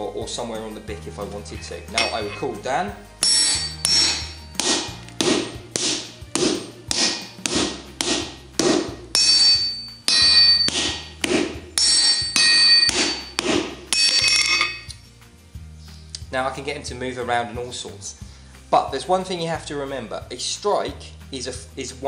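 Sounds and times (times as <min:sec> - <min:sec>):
hammers striking on anvil: 0:01.9 - 0:02.6, 0:03.2 - 0:14.9.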